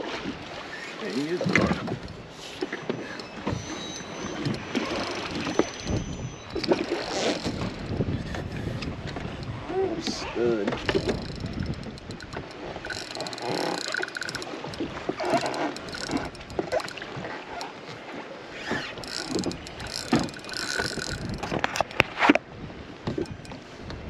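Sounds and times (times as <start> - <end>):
water against boat hull: 0.0 - 24.0
fishing reel clicking buzz: 1.1 - 2.2, 3.0 - 8.0, 10.7 - 17.8, 18.6 - 22.1, 23.2 - 23.6
wind on microphone: 3.4 - 17.4, 18.6 - 24.0.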